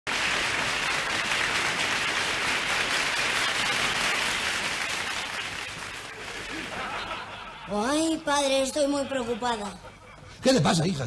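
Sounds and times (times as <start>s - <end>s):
audience applauding: 0.1s - 7.3s.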